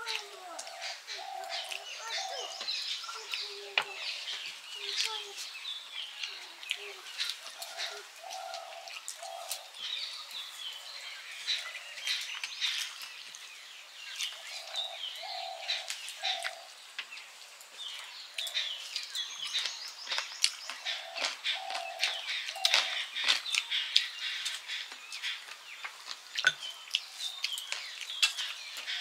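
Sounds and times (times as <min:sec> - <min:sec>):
birds chirping and calling: 0:00.0 - 0:29.0
eating by hand from steel plates: 0:18.4 - 0:29.0.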